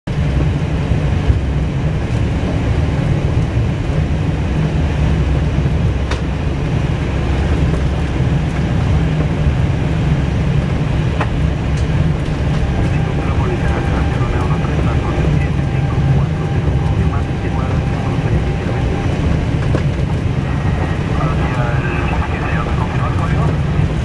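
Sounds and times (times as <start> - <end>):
low rumble of engines and wheels: 0.0 - 24.0.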